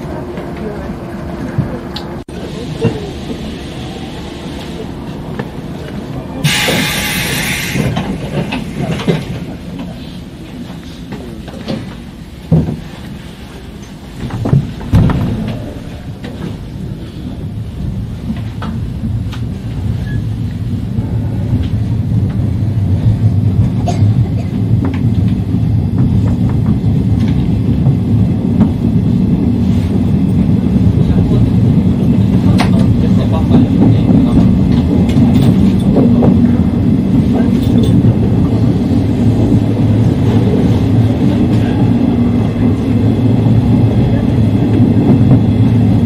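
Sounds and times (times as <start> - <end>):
electric train running noise: 0.0 - 9.9.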